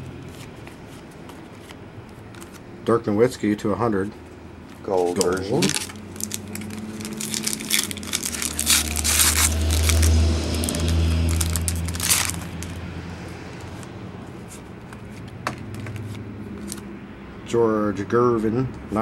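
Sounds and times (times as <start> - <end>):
wrapper torn open and crinkled: 5.1 - 12.8
low rumble: 6.2 - 13.2.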